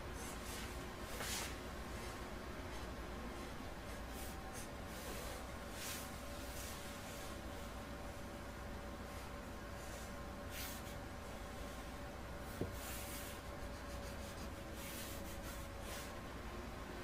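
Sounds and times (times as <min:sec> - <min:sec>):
faint steady hum: 0:00.0 - 0:17.0
pen scratching on paper: 0:12.7 - 0:16.1.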